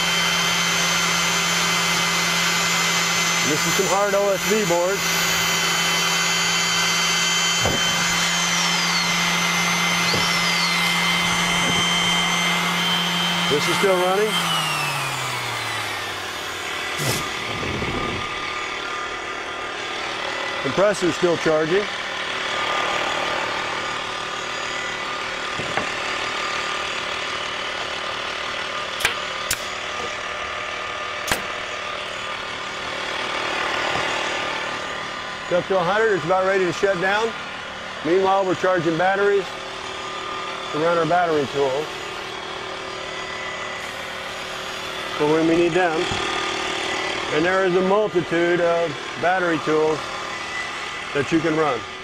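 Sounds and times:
pneumatic nailer clacks: 0.0 - 18.4, 27.7 - 31.8
air compressor running: 0.0 - 52.0
electric drill boring into board: 0.0 - 52.0
oscillating multi-tool drone: 0.0 - 52.0.

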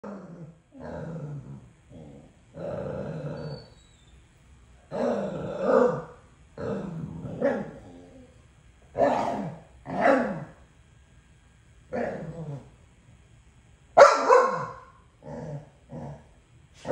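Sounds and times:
dogs growling: 0.0 - 3.8, 4.9 - 10.6, 11.9 - 12.8, 15.2 - 16.9.

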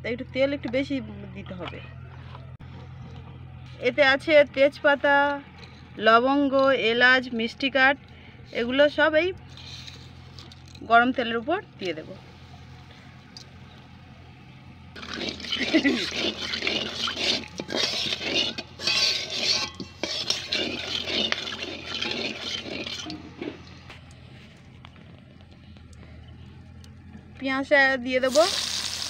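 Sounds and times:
spatula scraping a wok: 9.5 - 10.6, 15.0 - 24.6
spices sizzling in hot oil: 15.0 - 23.2, 28.2 - 29.0.

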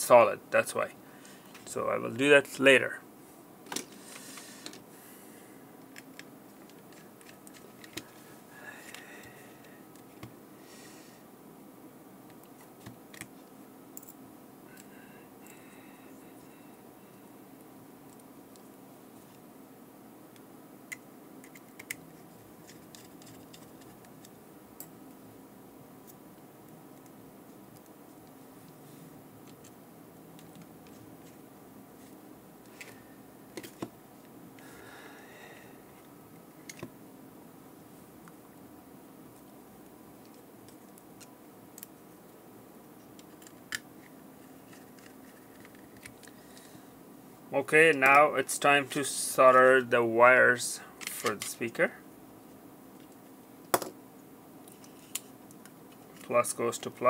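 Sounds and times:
steady low hum: 0.0 - 57.0.

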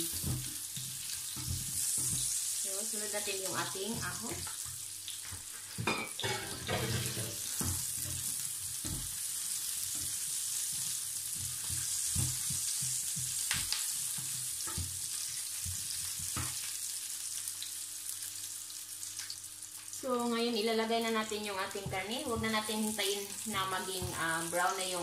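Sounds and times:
garlic and onion sizzling: 0.0 - 25.0
wooden spatula knocking and scraping: 9.9 - 16.6, 21.7 - 25.0.

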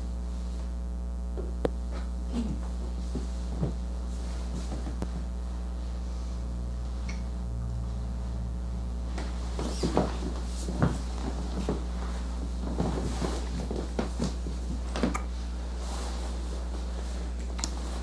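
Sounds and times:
low electrical hum: 0.0 - 18.0
clothing rustling: 2.6 - 7.0, 9.0 - 18.0.

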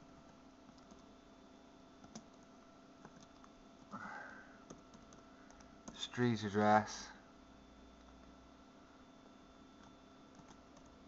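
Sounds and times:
short breath: 3.9 - 4.6.

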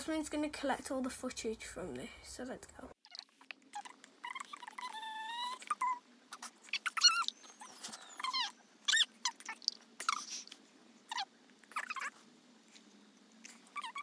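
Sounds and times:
sped up squeaky voices: 3.1 - 10.5, 11.1 - 12.2.

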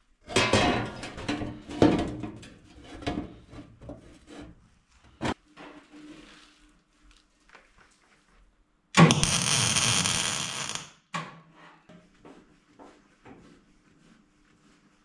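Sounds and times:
welding arc crackling: 9.0 - 10.9.

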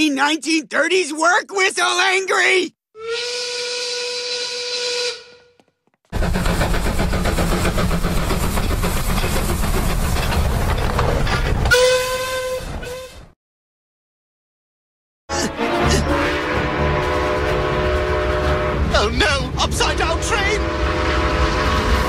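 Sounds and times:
steam whistle: 3.0 - 5.6, 11.7 - 13.3, 15.8 - 18.9, 20.6 - 22.0
steam locomotive running: 6.1 - 12.0, 15.8 - 22.0.

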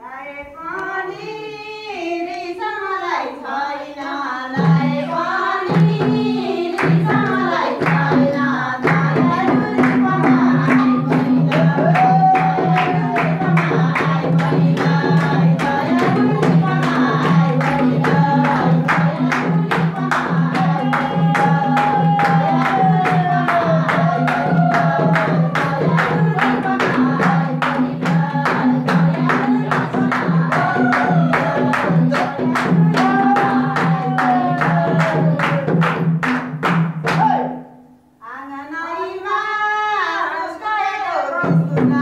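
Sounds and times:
person singing: 3.2 - 35.8
sharp rhythmic beats: 4.6 - 37.7
people clapping along: 5.2 - 37.5.

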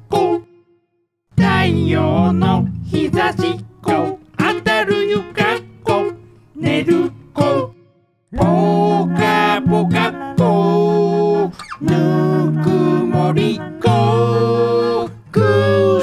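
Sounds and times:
person singing: 0.0 - 0.5, 1.4 - 7.8, 8.4 - 16.0
plucked acoustic strings: 1.4 - 4.6.

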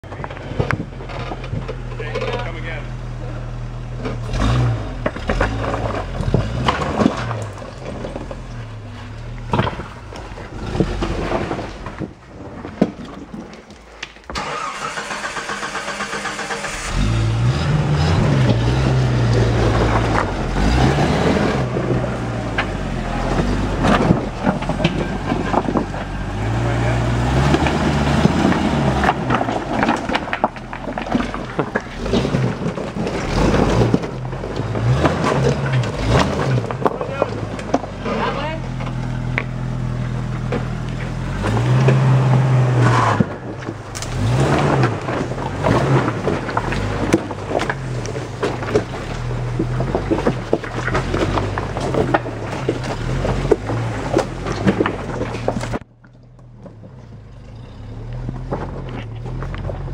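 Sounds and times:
off-road vehicle engine in low gear: 0.0 - 13.0, 14.3 - 59.9.

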